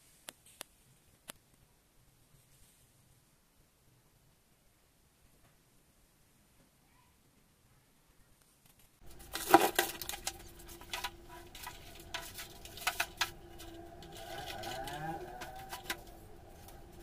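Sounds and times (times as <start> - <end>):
packaging rustling: 9.0 - 17.0
steady low hum: 9.0 - 17.0.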